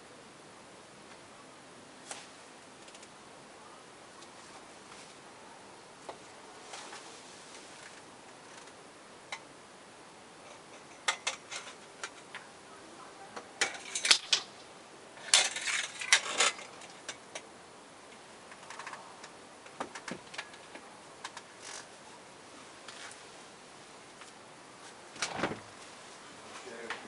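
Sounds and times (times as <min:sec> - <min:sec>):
faint steady background noise: 0:00.0 - 0:27.0
sharp clicks and crackles: 0:02.8 - 0:03.1, 0:13.6 - 0:14.7, 0:18.1 - 0:21.9.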